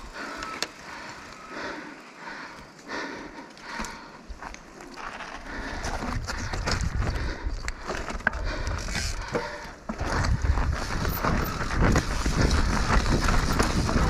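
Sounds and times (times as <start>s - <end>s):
mountain bike clattering: 3.6s - 14.0s.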